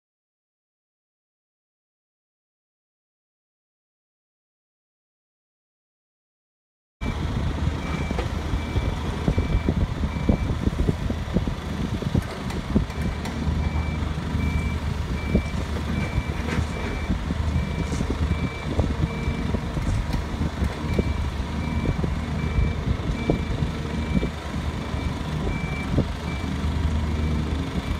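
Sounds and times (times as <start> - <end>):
diesel engine rumble: 7.0 - 27.9.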